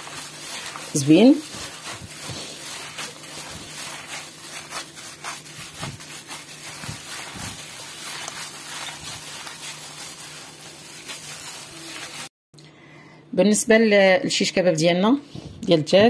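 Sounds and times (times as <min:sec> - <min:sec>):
gloved hands kneading wet mixture: 0:00.0 - 0:12.3.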